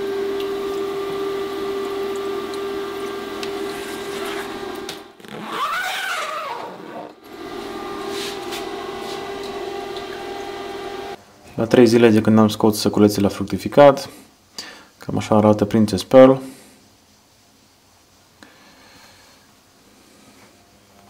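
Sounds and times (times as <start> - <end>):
fog generator and fan humming: 0.0 - 5.5, 7.1 - 11.8.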